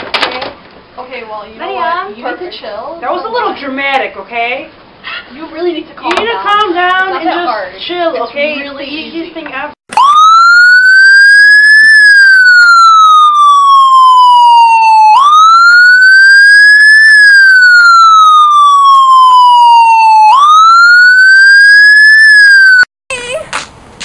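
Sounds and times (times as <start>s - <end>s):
electronic siren wailing: 9.9s - 22.9s.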